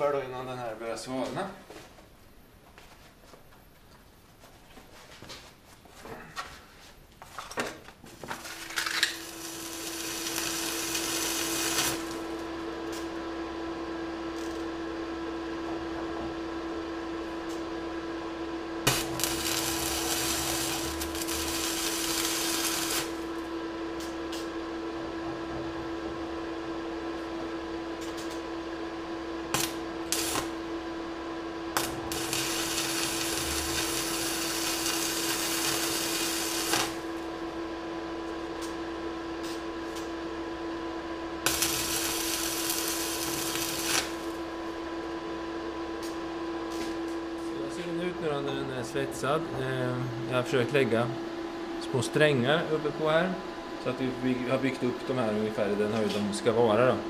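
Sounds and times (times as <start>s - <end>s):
steady hum: 8.2s - 57.0s
welding arc crackling: 8.4s - 13.1s, 18.8s - 24.5s, 29.5s - 30.9s, 31.7s - 37.4s, 41.4s - 44.8s.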